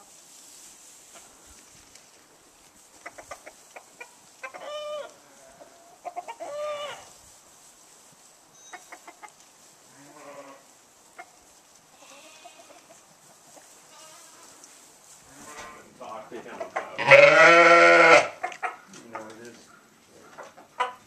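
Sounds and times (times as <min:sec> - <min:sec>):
hens clucking and squawking: 0:02.6 - 0:07.5, 0:08.6 - 0:21.0
goat bleating: 0:11.9 - 0:13.0, 0:13.9 - 0:14.5, 0:16.8 - 0:18.5.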